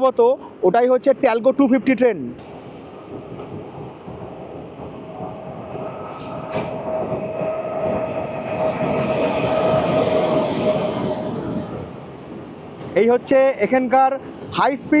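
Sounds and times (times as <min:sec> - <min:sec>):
high steady whine: 0:02.4 - 0:12.2
electric train running: 0:02.4 - 0:13.0.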